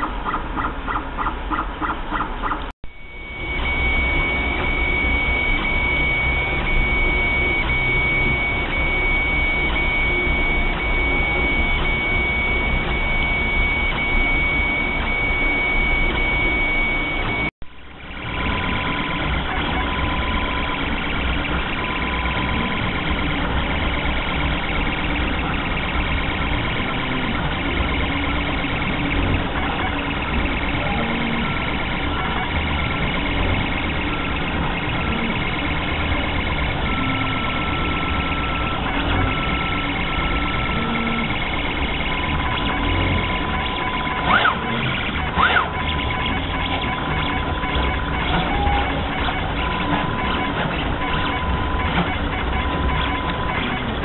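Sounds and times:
stepper motors whirring: 3.1s - 17.5s, 18.1s - 54.0s.

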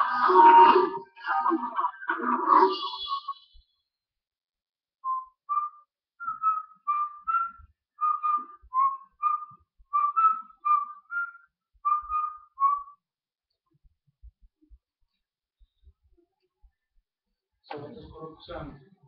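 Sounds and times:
person whistling a tune: 5.0s - 13.0s.

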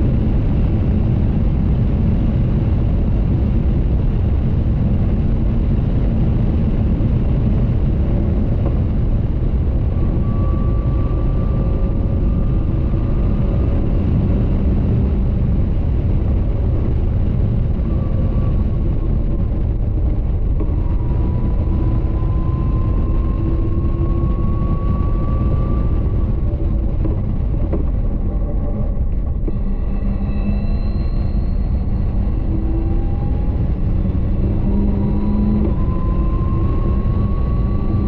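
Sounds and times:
car engine running hard: 0.0s - 38.0s
wind rumble: 0.0s - 38.0s.

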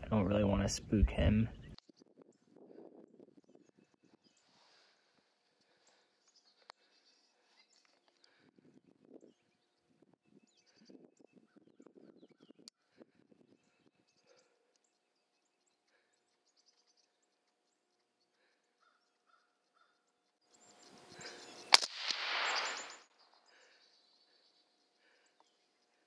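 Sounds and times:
rifle shot: 21.7s - 23.1s.

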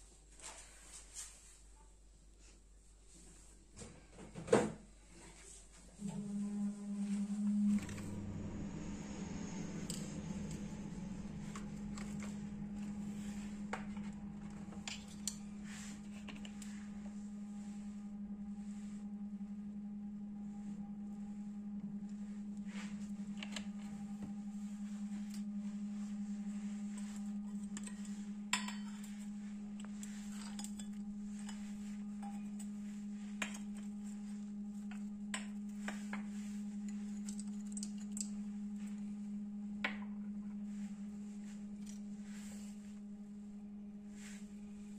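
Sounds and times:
low hum: 0.0s - 44.9s
spoon tapping steel bowl: 27.7s - 29.1s.

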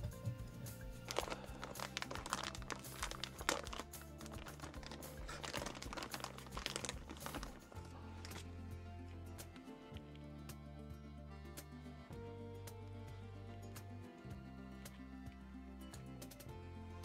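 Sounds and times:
background music: 0.0s - 17.0s
plastic bag crinkling: 1.0s - 8.5s.

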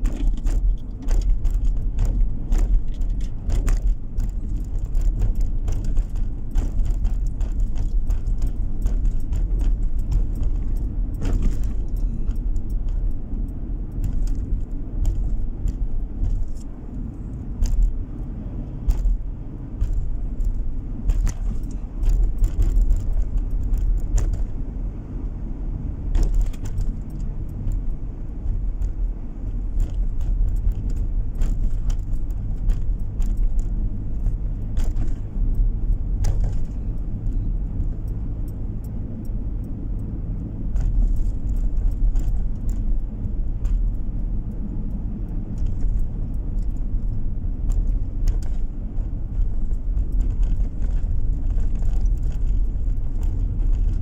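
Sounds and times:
small rattles and clicks: 0.0s - 25.4s, 26.0s - 54.0s
road and engine rumble: 0.0s - 54.0s.

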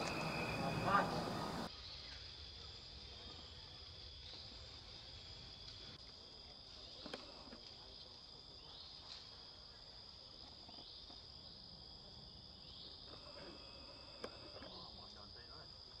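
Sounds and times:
rising chirps: 0.0s - 1.7s
high-pitched insect song: 0.0s - 7.1s, 7.9s - 16.0s.

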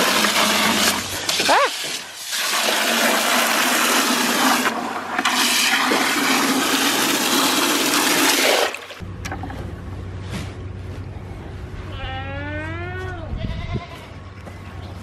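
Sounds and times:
hose water gushing into buckets: 0.0s - 9.0s.

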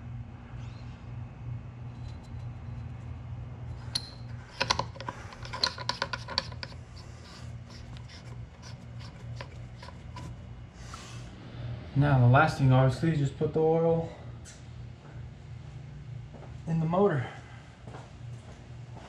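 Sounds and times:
steady low hum: 0.0s - 19.0s
hands clicking and scratching metal: 4.0s - 10.4s.

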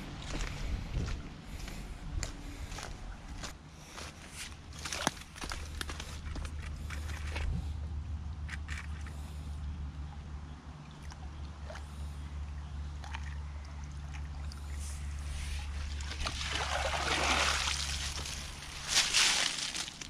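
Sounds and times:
water running through ditch: 4.3s - 7.8s, 10.9s - 20.0s
dripping net lifted from water: 13.0s - 20.0s
net sloshing through water: 13.0s - 20.0s.

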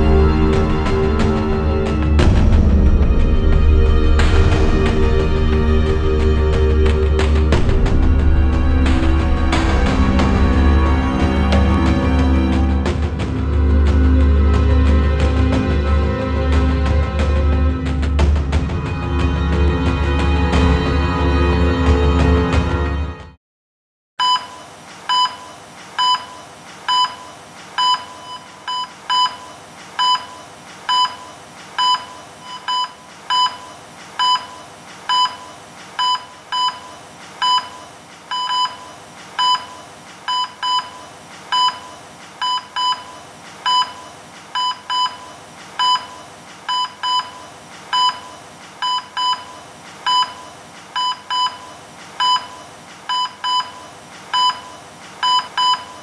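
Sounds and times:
faint steady hiss: 24.2s - 56.0s
patient monitor beeping: 24.2s - 56.0s.

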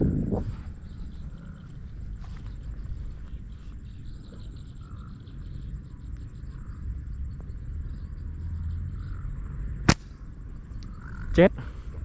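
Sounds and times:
wind rumbling on microphone: 0.0s - 12.0s
slingshot crack: 9.8s - 10.2s.

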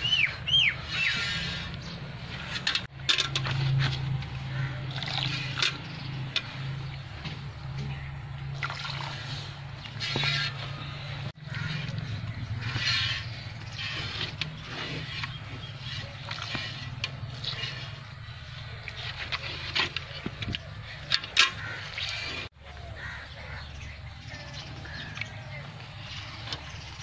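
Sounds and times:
milk squirting into bucket: 8.6s - 9.2s.

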